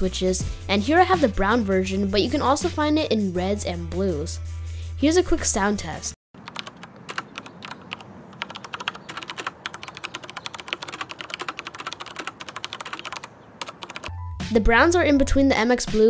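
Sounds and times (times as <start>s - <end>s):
mechanical keyboard typing: 6.4s - 14.1s.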